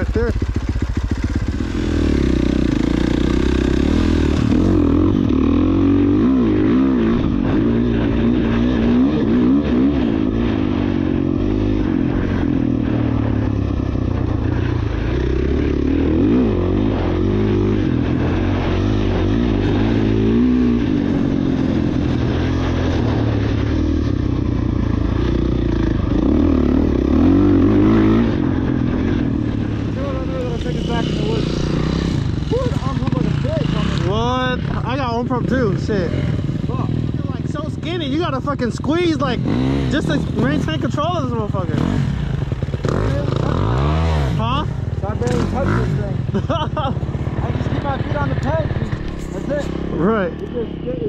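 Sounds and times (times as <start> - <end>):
dirt bike engine revving: 0.0 - 51.0.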